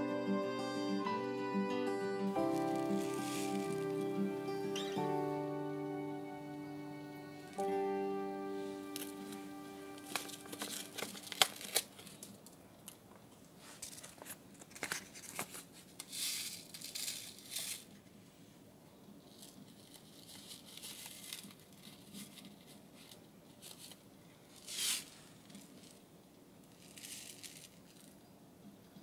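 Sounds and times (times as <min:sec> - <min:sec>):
packet crinkling and tearing: 0:02.4 - 0:05.0, 0:08.8 - 0:12.6, 0:13.6 - 0:18.0, 0:19.3 - 0:26.0, 0:26.7 - 0:28.2.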